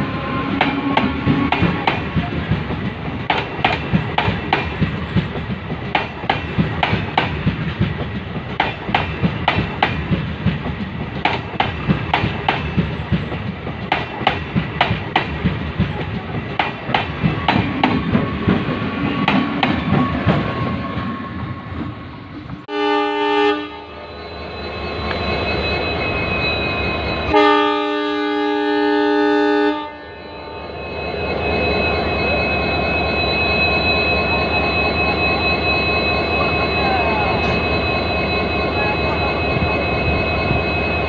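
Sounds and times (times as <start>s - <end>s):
train wheels rumbling on rails: 0.0s - 22.8s, 30.7s - 41.0s
clickety-clack over rail joints: 0.6s - 21.1s.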